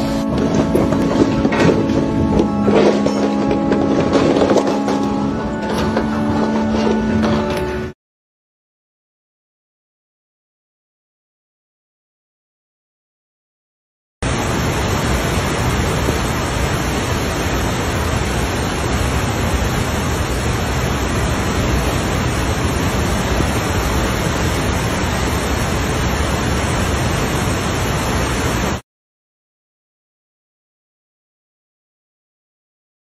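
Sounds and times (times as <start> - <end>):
floodwater rushing: 0.0 - 7.6, 14.2 - 28.8.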